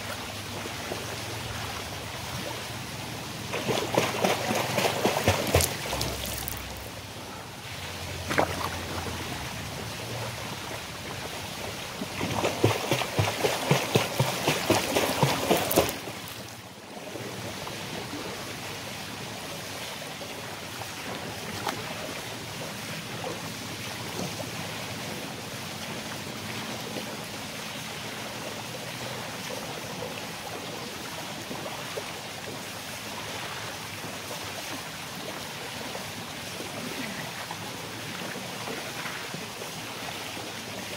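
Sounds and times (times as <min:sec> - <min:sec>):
pool water splashing: 0:00.0 - 0:40.9
quick regular splashes: 0:03.4 - 0:07.0, 0:12.0 - 0:16.6.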